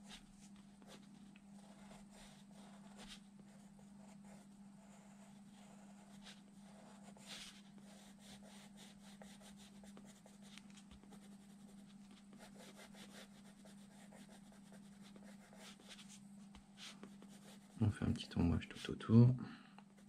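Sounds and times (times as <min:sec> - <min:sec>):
pencil scratching on paper: 0:00.0 - 0:16.2, 0:16.8 - 0:17.8
steady low hum: 0:00.0 - 0:20.0.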